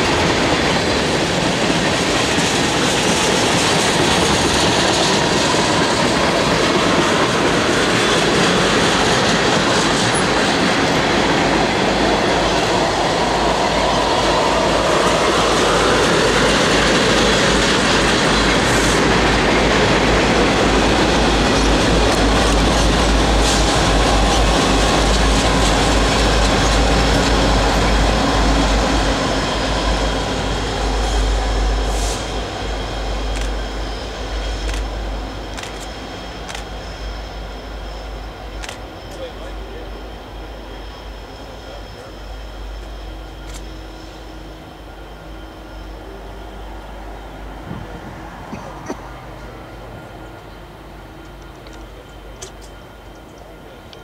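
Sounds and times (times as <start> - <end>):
diesel locomotive engines rumbling: 0.0 - 54.0
train wheels clicking over rails: 0.0 - 54.0.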